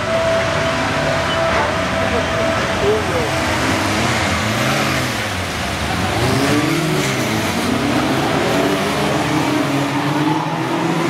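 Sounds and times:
race car engines revving: 0:00.0 - 0:11.0.

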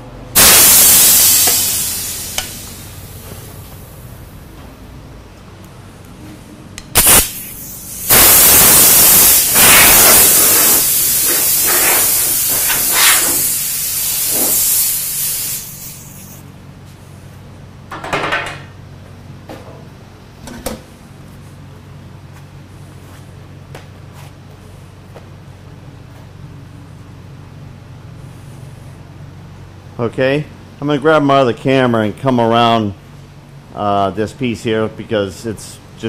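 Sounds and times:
compressed air blow gun blasting: 0:00.4 - 0:03.2, 0:06.9 - 0:16.4.

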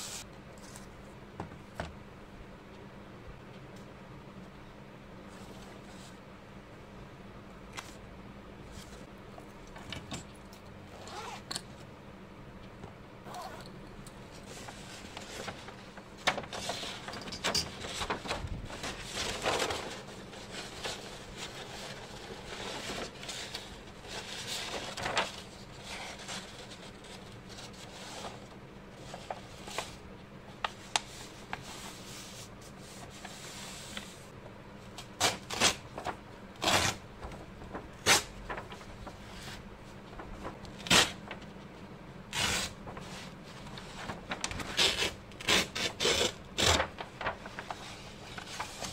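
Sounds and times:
paper rubbing and rustling: 0:14.4 - 0:30.0, 0:35.2 - 0:41.6, 0:42.3 - 0:48.9.

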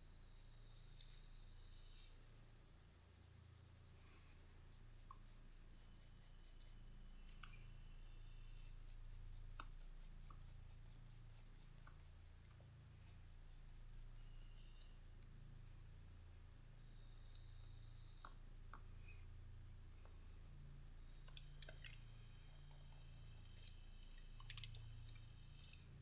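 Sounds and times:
pencil scratching on paper: 0:00.4 - 0:06.8, 0:08.0 - 0:15.0.

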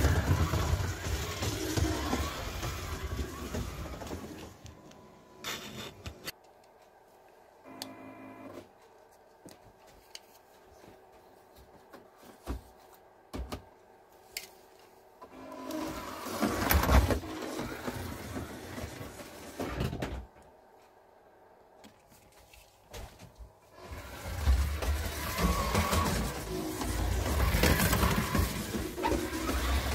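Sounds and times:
slot car motor whirring: 0:00.0 - 0:04.6, 0:23.8 - 0:29.9.

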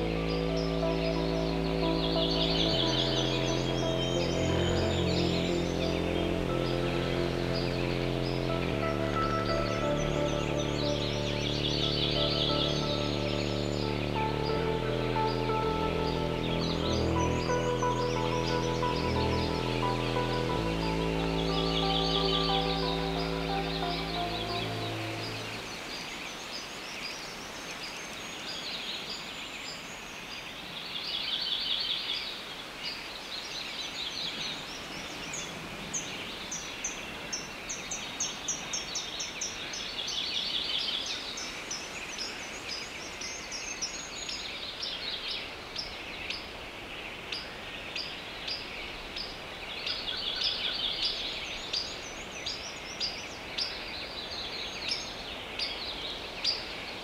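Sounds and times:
trilled bird songs: 0:00.0 - 0:26.7
steady high hiss: 0:00.0 - 0:30.2
small birds chirping: 0:00.0 - 0:31.7.

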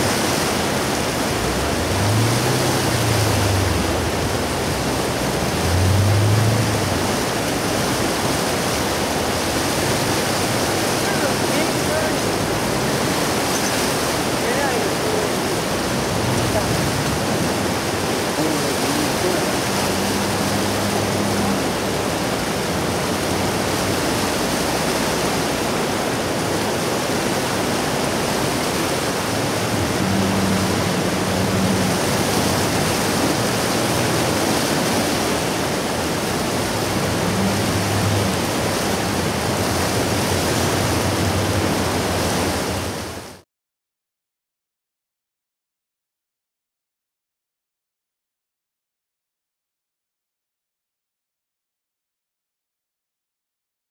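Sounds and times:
river water rushing: 0:00.0 - 0:43.4.

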